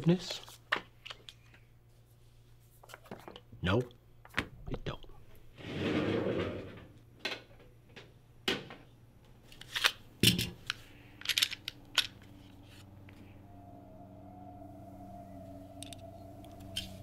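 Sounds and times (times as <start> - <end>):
low steady hum: 6.4 - 17.0.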